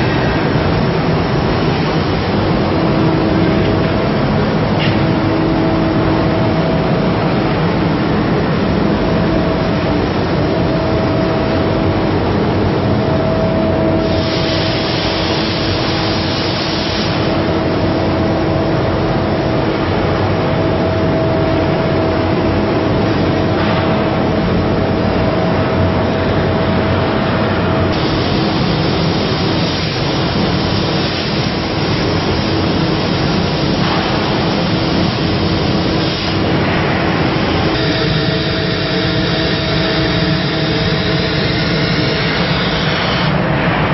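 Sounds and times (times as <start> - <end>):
plasma arc hissing: 14.0 - 17.5, 27.9 - 43.4
cutting machine humming: 37.3 - 43.3.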